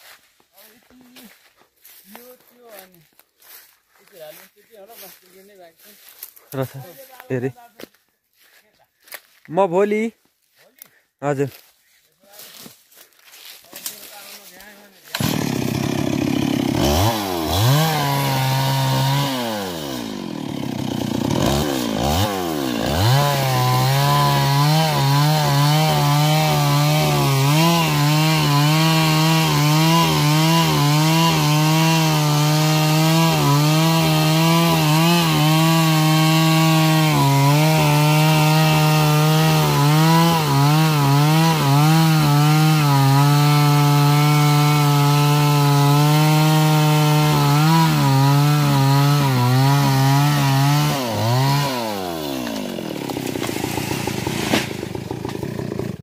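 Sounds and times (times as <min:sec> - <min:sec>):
chainsaw cutting wood: 0:13.4 - 0:56.0.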